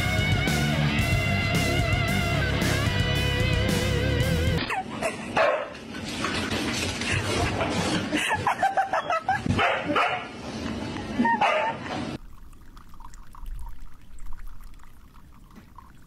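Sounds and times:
dog barking and yipping: 4.7 - 5.8, 8.9 - 10.4, 11.2 - 11.9.

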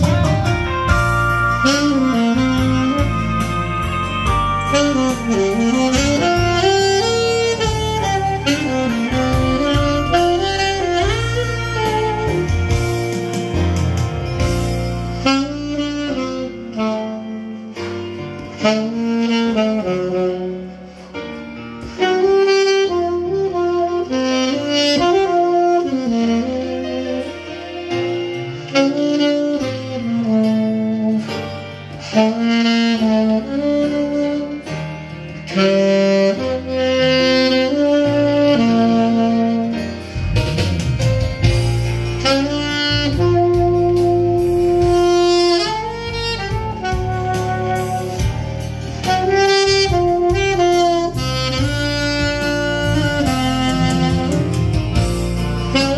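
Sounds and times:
alto saxophone ballad melody: 0.0 - 55.9
backing track with bass line: 0.0 - 55.9.

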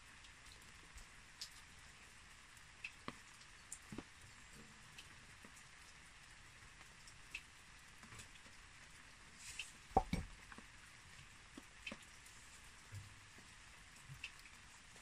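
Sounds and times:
tool knocking on plate: 10.0 - 10.3.

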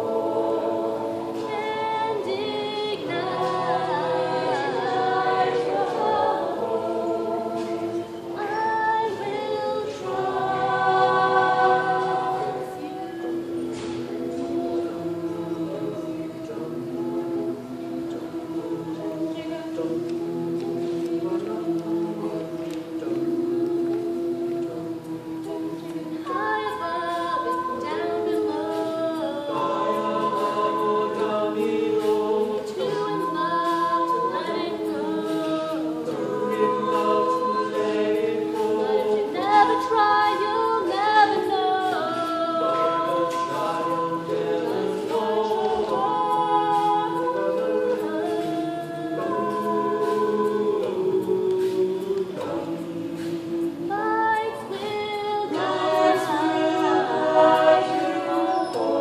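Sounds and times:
group singing in harmony: 0.0 - 59.0.

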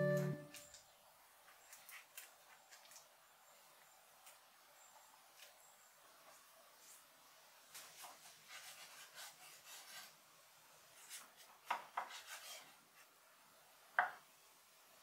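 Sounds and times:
scraping and rubbing strokes: 7.7 - 10.2, 10.9 - 13.1.

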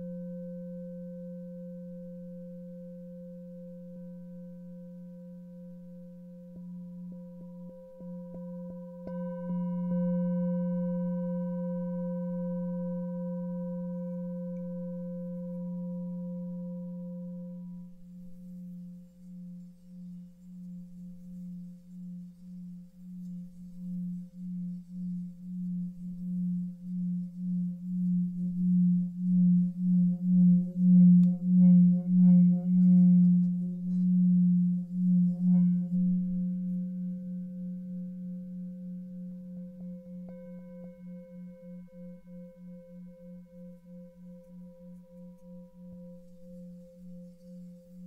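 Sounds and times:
singing bowl rim rubbed: 0.0 - 48.0
singing bowl struck: 6.6 - 17.9, 25.5 - 38.3, 39.5 - 48.0.

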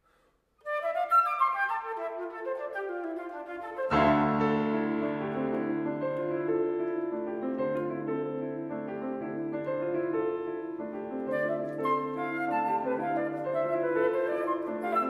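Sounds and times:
flute: 0.6 - 6.3, 10.5 - 15.0
grand piano chords: 3.8 - 15.0.

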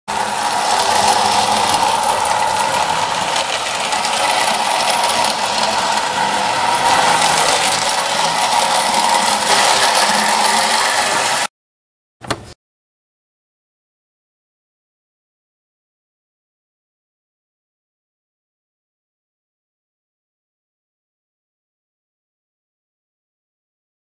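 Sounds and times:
toy locomotive rattling on track: 0.1 - 11.5.

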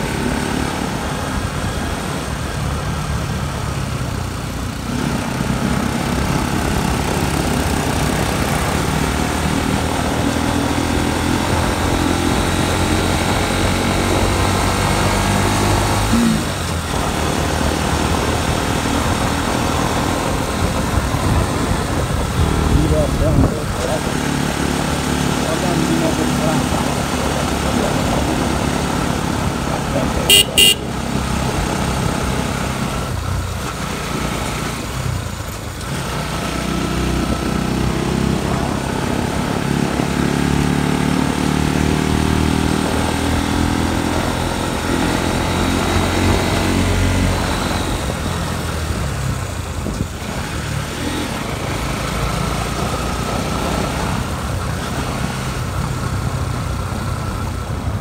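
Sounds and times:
motorcycle engine running: 0.0 - 58.0
motorcycle horn toots: 30.3 - 31.0.

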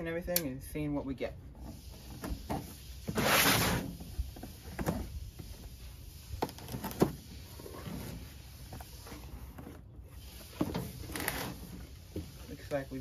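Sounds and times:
packing tape ripped off box: 3.0 - 4.0.

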